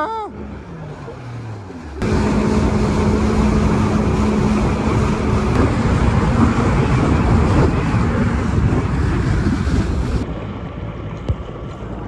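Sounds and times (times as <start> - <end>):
jet ski engine droning: 0.0 - 12.0
wind on microphone: 2.0 - 10.3.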